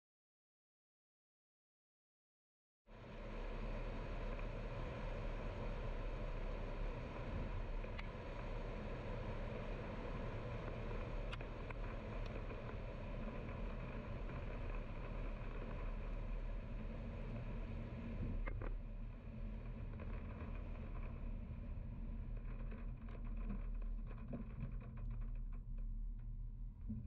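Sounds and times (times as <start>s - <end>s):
car driving road noise: 3.2s - 18.7s
faint clicks: 7.8s - 8.4s.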